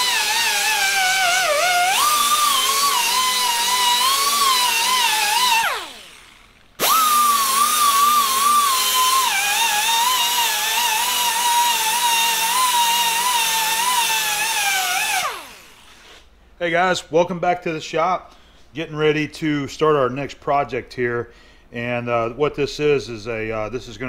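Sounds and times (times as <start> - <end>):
die grinder whining: 0.0 - 16.3.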